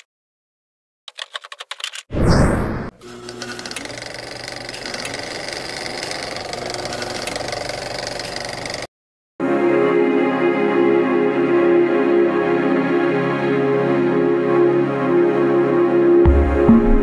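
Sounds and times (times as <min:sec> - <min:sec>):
loud hit with falling whoosh: 0:02.2 - 0:02.9
soft music: 0:09.4 - 0:17.0.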